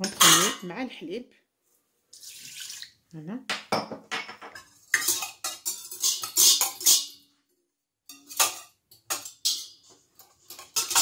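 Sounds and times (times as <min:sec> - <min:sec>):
whisk clinking against metal bowl: 0:04.6 - 0:07.2, 0:08.1 - 0:11.0.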